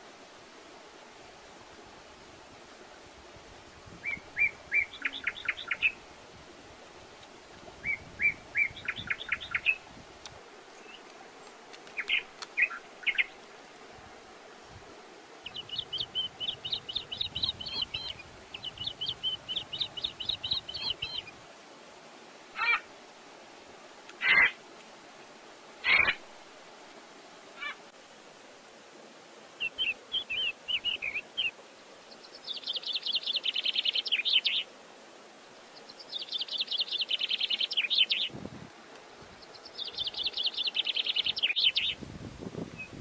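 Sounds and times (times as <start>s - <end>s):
birds chirping: 4.0s - 6.0s, 7.8s - 9.8s, 10.6s - 13.6s, 15.4s - 21.3s, 24.2s - 24.6s, 25.8s - 26.2s, 29.6s - 34.7s, 35.8s - 38.3s, 39.4s - 42.0s.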